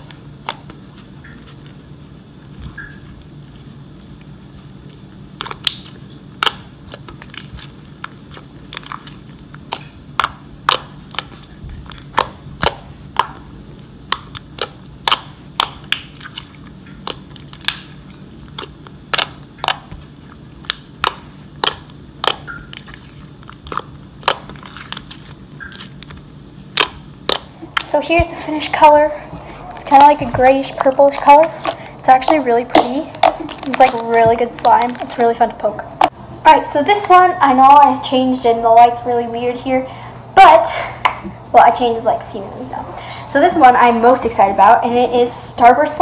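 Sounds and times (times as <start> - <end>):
slime squished by hand: 4.5 - 36.2
slime air pockets popping: 5.4 - 13.4, 14.0 - 36.2.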